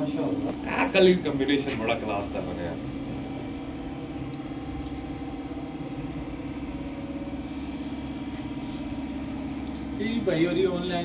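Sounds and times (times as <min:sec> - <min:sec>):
motor running: 0:00.0 - 0:11.0.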